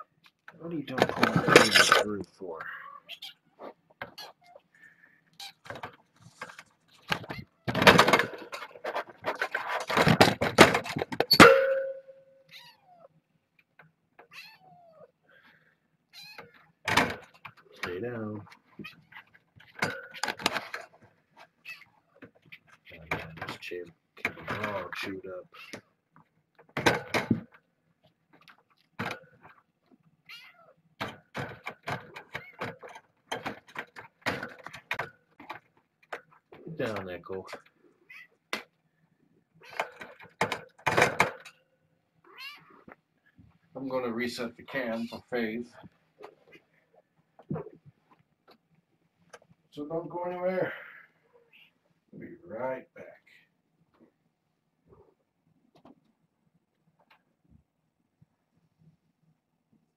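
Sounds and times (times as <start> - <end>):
rustling: 0.1 - 11.4
clattering against camera: 0.5 - 2.2, 5.6 - 12.1, 16.4 - 21.6, 26.6 - 29.6, 31.0 - 37.7, 39.7 - 41.6
kittens mewing: 2.6 - 5.9, 14.3 - 15.5, 42.2 - 43.0
sharp ringing knock: 11.4 - 12.3
kitten meowing: 12.5 - 13.1.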